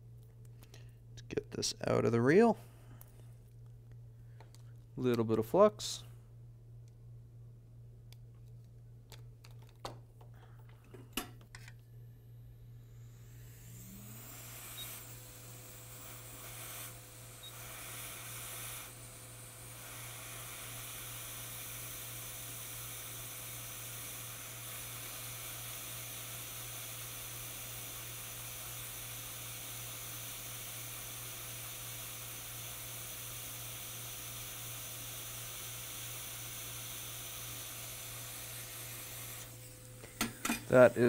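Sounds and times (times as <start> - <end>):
low steady hum: 0.0 - 17.6
hot air station hissing: 12.6 - 41.0.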